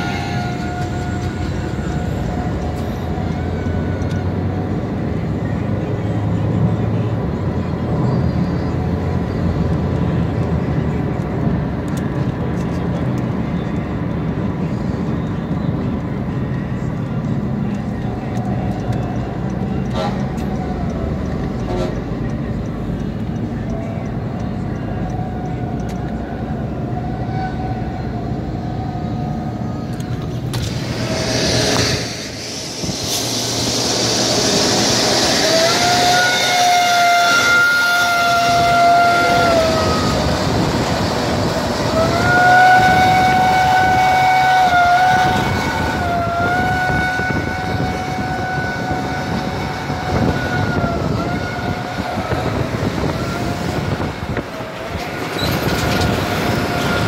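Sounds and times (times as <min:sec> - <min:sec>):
long steady whine: 0:00.0 - 0:12.8, 0:27.7 - 0:57.0
highway traffic noise: 0:00.0 - 0:57.0.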